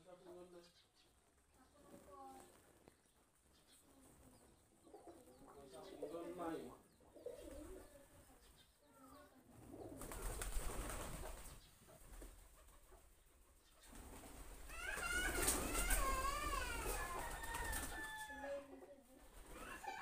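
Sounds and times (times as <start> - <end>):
rustling: 1.1 - 4.6
pigeons cooing: 4.2 - 8.6, 9.4 - 20.0.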